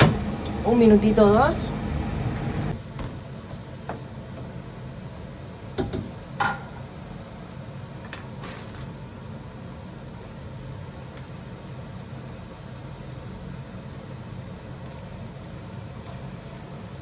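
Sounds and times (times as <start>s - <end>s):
kitchen appliance humming: 0.0s - 2.8s.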